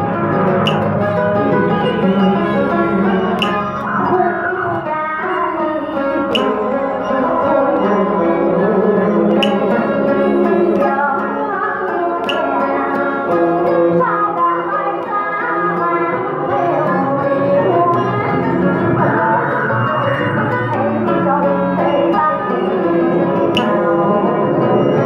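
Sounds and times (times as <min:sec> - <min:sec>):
plucked string accompaniment: 0:00.0 - 0:25.0
sharp percussive tap: 0:00.5 - 0:03.9, 0:06.2 - 0:06.7, 0:09.3 - 0:09.9, 0:12.2 - 0:12.6, 0:23.5 - 0:23.8
woman singing a ballad: 0:04.0 - 0:24.3.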